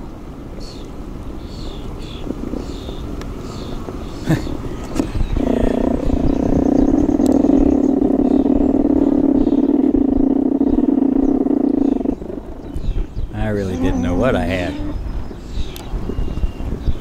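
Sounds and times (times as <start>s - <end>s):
beehive growling drone: 5.3s - 15.0s.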